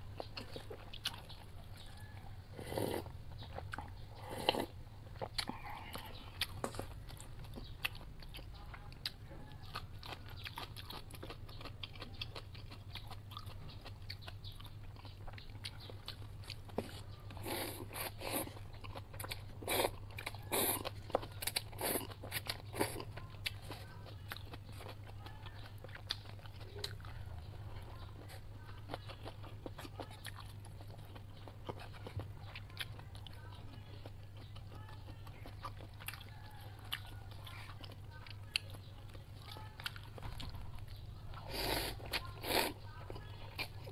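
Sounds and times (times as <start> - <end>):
wet chewing: 0.0 - 43.9
noodle slurping: 41.4 - 42.8.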